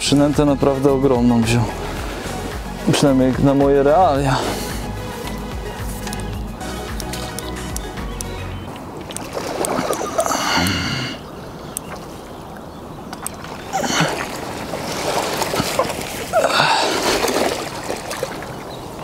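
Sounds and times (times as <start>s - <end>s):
fish splashing at water surface: 9.0s - 10.6s, 13.1s - 18.8s.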